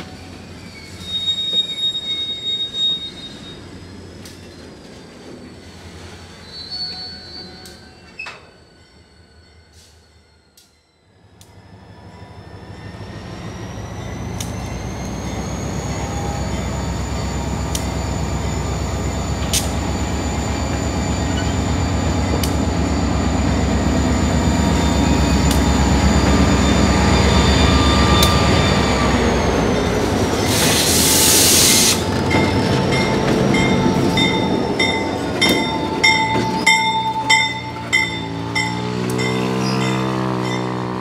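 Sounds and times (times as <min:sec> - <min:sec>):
high wheel squeal: 0:00.0 - 0:03.9, 0:05.5 - 0:41.0
diesel locomotive engines rumbling: 0:00.0 - 0:41.0
loud hiss: 0:30.4 - 0:32.1
crossing bell ringing: 0:32.0 - 0:41.0.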